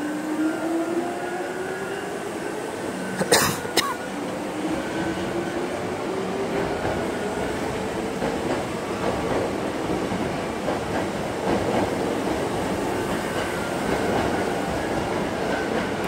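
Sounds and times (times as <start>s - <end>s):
train running noise: 0.0s - 16.0s
person coughing: 3.2s - 4.0s.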